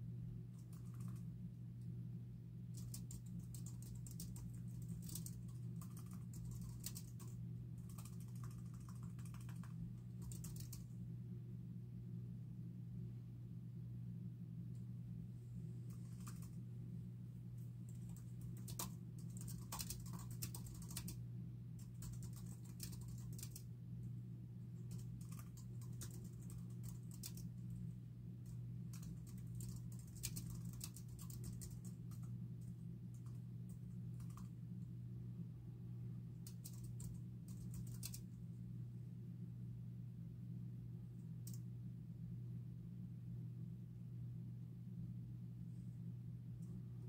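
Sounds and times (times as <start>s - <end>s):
low hum: 0.0s - 47.0s
keyboard typing clicks: 0.7s - 1.2s, 2.8s - 10.8s, 17.9s - 21.2s, 34.2s - 34.5s, 36.4s - 38.2s.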